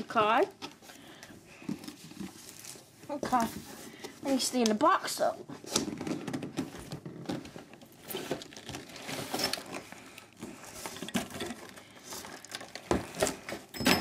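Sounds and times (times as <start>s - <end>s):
cardboard rustling and scraping: 1.7s - 4.6s, 5.4s - 13.7s.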